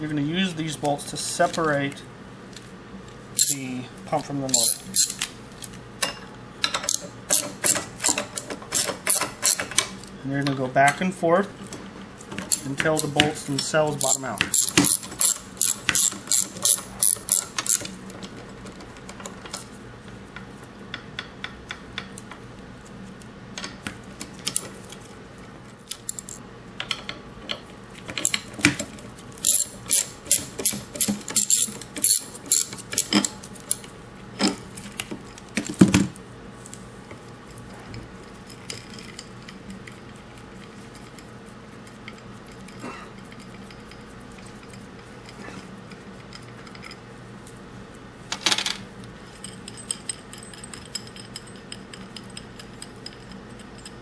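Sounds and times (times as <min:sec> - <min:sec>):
ratchet wrench clicking: 0:03.4 - 0:03.7, 0:04.5 - 0:05.3, 0:14.0 - 0:17.9, 0:29.4 - 0:33.8.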